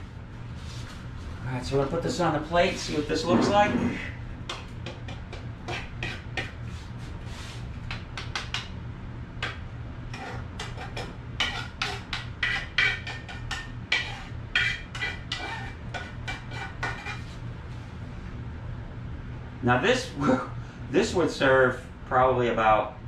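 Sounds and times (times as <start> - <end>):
metal utensil scraping a skillet: 10.1 - 17.4.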